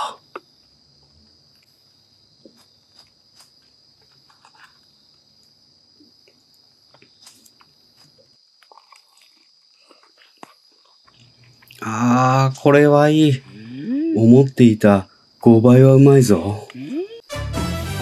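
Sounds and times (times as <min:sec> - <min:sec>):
crickets trilling: 0:00.0 - 0:17.4
person chewing crispy food: 0:02.5 - 0:04.9, 0:06.2 - 0:11.9.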